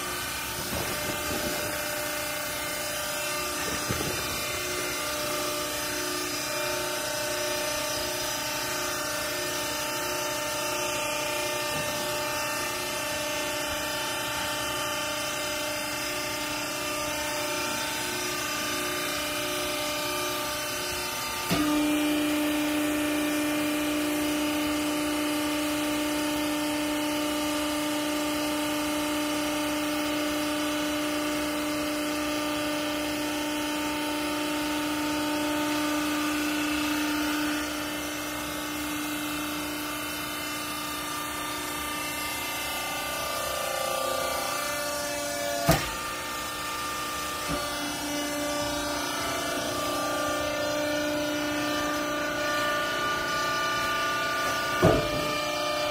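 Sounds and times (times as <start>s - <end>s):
baler machine hum: 0.0s - 21.7s, 35.0s - 55.9s
steady machine whine: 0.0s - 55.9s.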